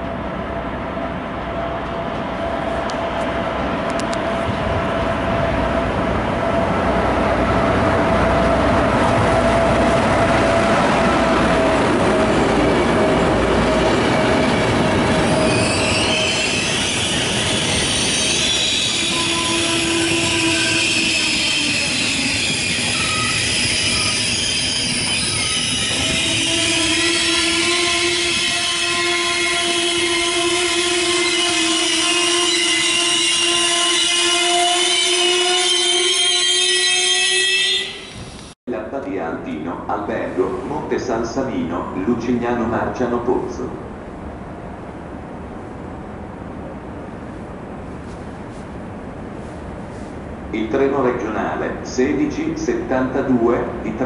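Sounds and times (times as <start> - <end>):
rumble of train wheels on rail: 0.0 - 33.9, 38.0 - 54.0
high-pitched wheel squeal: 14.2 - 29.0, 29.6 - 38.4.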